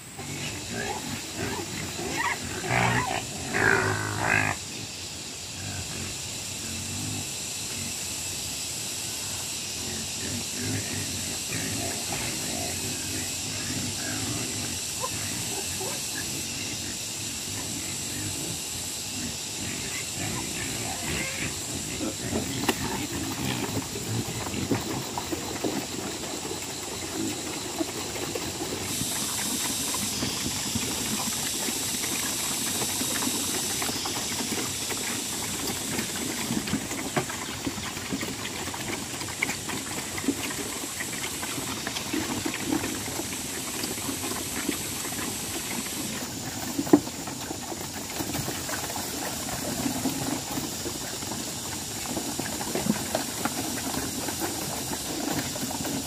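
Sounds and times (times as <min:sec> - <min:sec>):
steady high hiss: 0:00.0 - 0:25.2
pigs chomping and slurping: 0:00.0 - 0:56.0.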